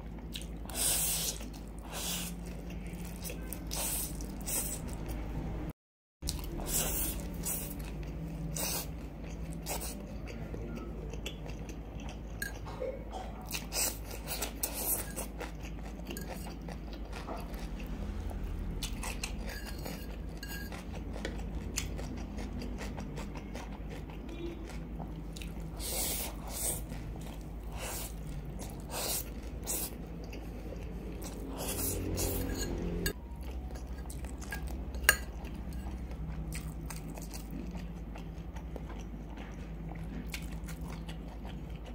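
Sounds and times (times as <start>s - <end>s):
chewing and biting noodles: 18.8s - 32.6s, 33.3s - 41.9s
fork scraping ceramic plate: 19.3s - 20.8s, 31.6s - 33.2s.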